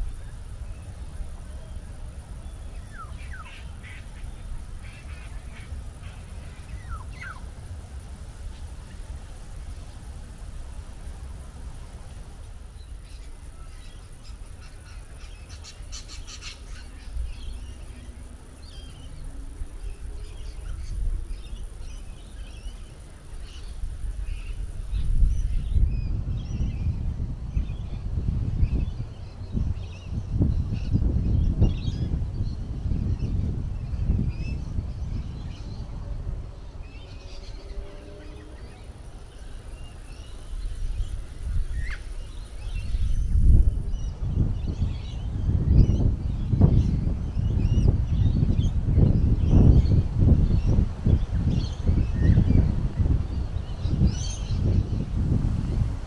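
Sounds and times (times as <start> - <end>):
small birds chirping: 0.0 - 55.8
wind rumble on microphone: 0.0 - 56.0
birds chirping and calling: 1.6 - 7.5, 12.8 - 26.9.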